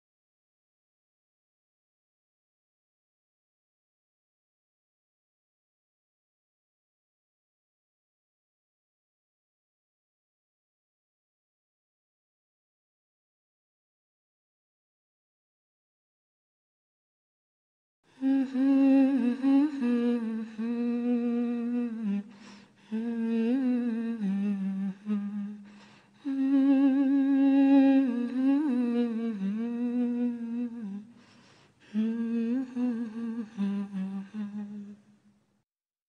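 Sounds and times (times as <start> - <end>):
woman singing wordless melody: 18.1 - 35.2.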